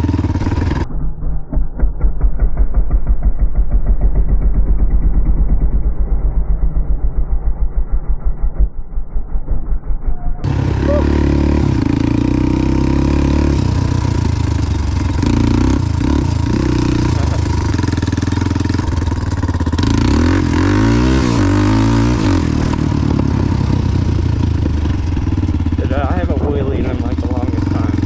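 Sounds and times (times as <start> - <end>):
quad bike engine revving: 0.0 - 0.9, 10.4 - 28.0.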